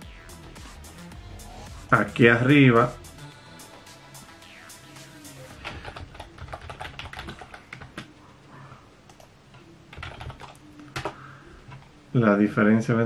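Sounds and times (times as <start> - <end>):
computer keyboard typing: 5.5 - 8.1, 9.9 - 11.9.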